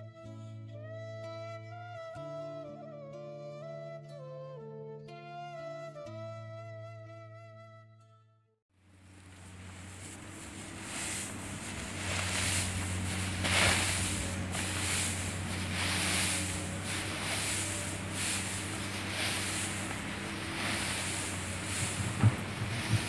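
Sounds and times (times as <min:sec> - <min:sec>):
dry hay rustling: 0:08.8 - 0:23.0
steady low hum: 0:08.8 - 0:23.0.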